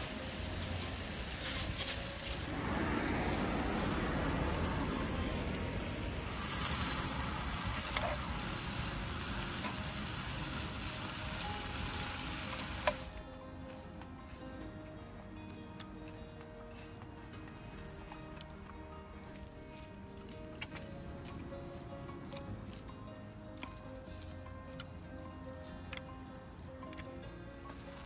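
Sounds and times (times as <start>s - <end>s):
meat sizzling in a pan: 0.0s - 13.1s.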